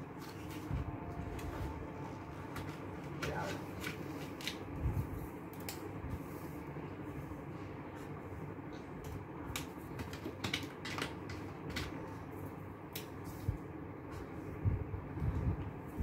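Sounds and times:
low background hum: 0.0 - 16.0
plastic pens clicking in case: 9.5 - 12.0.

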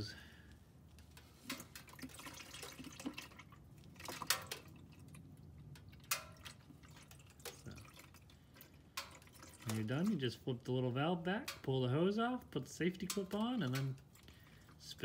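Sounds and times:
liquid trickling into bucket: 1.2 - 10.3, 13.0 - 15.0
sharp drips and taps: 1.4 - 10.3, 11.3 - 14.9.

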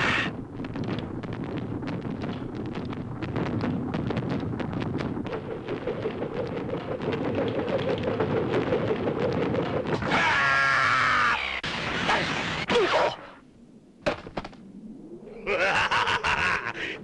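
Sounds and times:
rushing crackling noise: 0.0 - 12.7.

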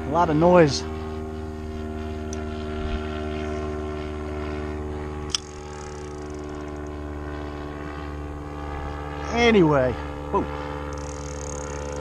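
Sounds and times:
motorboat engine drone: 0.0 - 12.0
sharp click: 5.3 - 7.0.

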